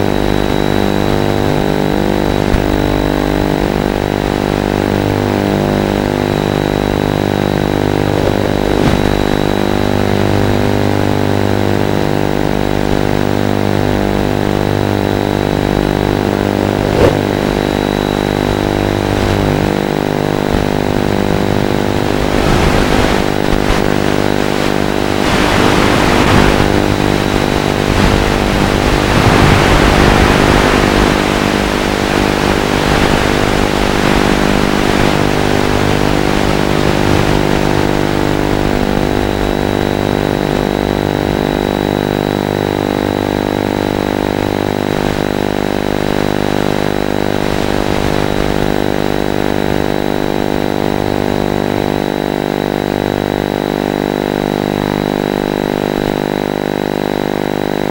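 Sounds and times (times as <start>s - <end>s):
quadcopter buzzing hum: 0.0s - 57.9s
thin high whine: 0.0s - 57.9s
loud rushing noise: 0.4s - 11.8s, 15.2s - 42.1s.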